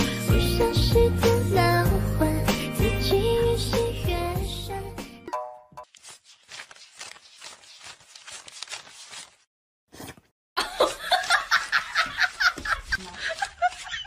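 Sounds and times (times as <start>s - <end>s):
person laughing: 10.6s - 14.0s.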